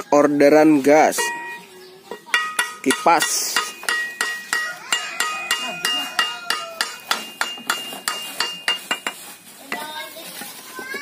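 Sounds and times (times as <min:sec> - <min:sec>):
hammer striking metal blade: 0:02.4 - 0:09.0.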